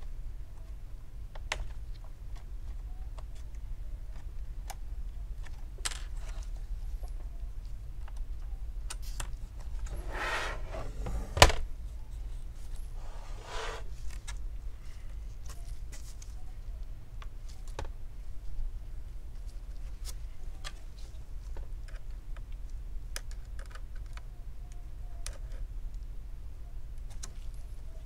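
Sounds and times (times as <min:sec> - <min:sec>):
small plastic clicks: 0:21.5 - 0:26.1.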